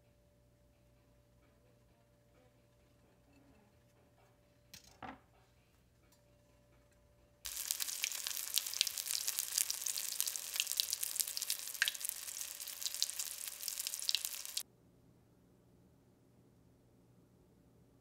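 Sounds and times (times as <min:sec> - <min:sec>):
chicken strips sizzling in oil: 0:07.5 - 0:14.6.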